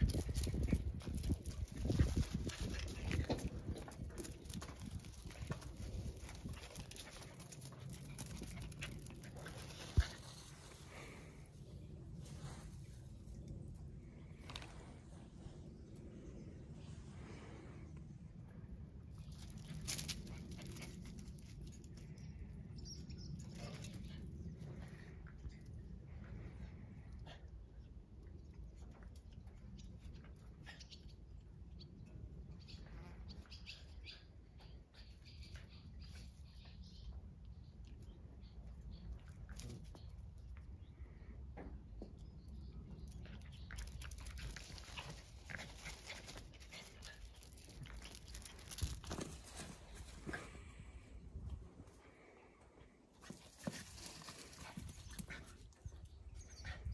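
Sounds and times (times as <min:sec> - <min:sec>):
puppy paws on concrete: 0:00.0 - 0:11.3, 0:19.1 - 0:25.6, 0:42.0 - 0:50.8, 0:53.1 - 0:56.1.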